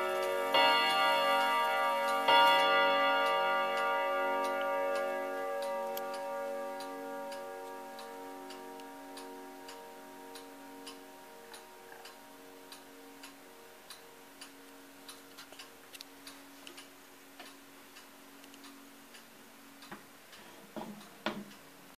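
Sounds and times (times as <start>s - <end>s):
chime rods ringing: 0.0s - 12.4s
clock ticking: 0.0s - 22.0s.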